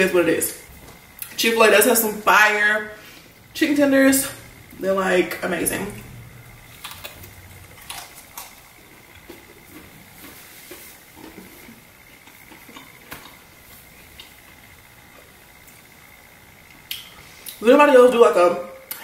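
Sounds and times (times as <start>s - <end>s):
chewing crunchy food: 6.6s - 15.9s.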